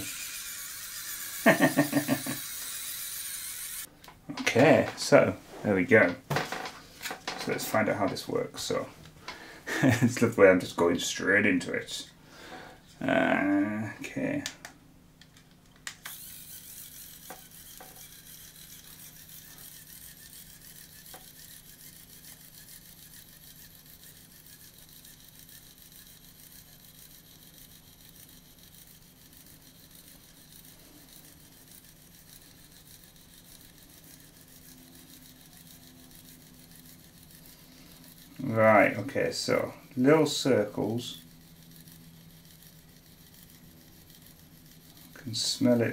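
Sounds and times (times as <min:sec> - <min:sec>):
small motor whirring: 0:00.0 - 0:06.1, 0:15.2 - 0:45.9.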